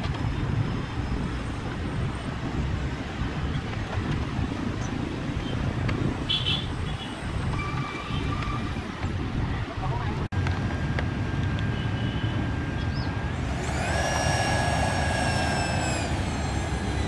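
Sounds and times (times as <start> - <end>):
electric ducted fan rumble: 13.1 - 17.0.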